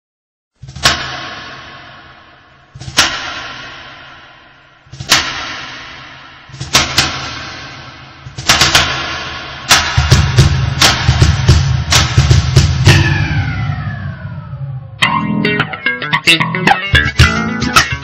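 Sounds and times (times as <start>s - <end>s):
heavy echoing percussion hits: 0.6s - 18.0s.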